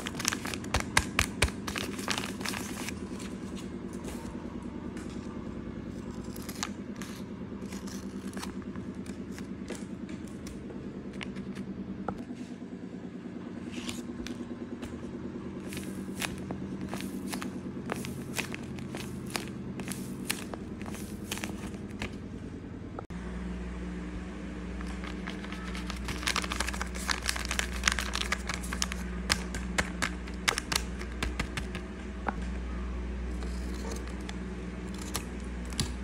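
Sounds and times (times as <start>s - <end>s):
paper bag crinkling: 0.0s - 3.6s, 15.6s - 22.1s, 24.8s - 31.2s
steady low hum: 0.0s - 36.0s
paper squishy squeezed: 24.8s - 31.8s.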